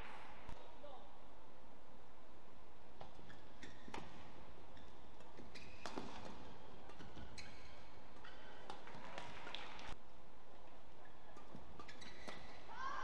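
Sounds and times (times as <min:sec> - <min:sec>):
racket hitting shuttlecock: 0:03.0 - 0:04.3, 0:05.2 - 0:09.4
shoes squeaking on court: 0:03.0 - 0:09.5, 0:11.0 - 0:12.7.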